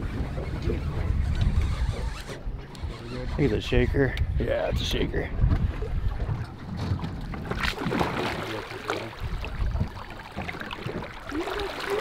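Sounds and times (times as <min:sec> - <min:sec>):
fish splashing in water: 0:07.3 - 0:12.0.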